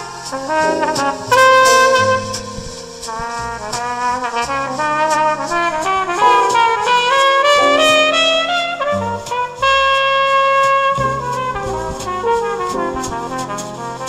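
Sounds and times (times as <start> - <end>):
instrumental music through a small speaker: 6.2 - 9.7.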